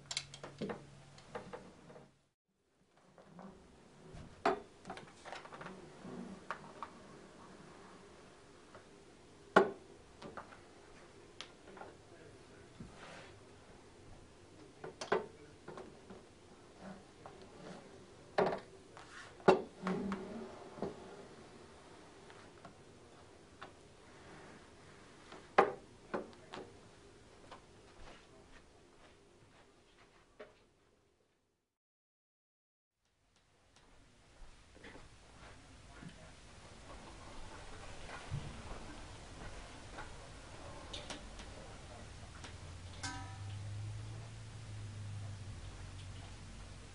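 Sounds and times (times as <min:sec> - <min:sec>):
metal rail clicking and knocking: 0:42.9 - 0:43.7.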